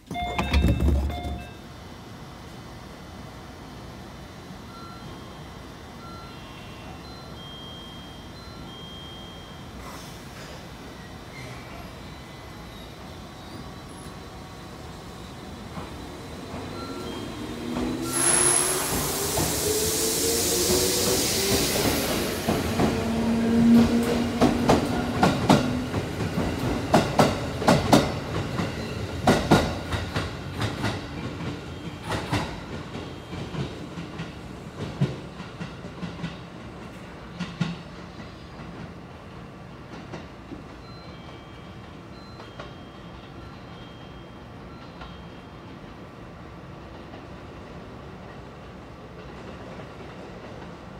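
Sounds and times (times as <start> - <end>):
air hiss burst: 18.1 - 21.9.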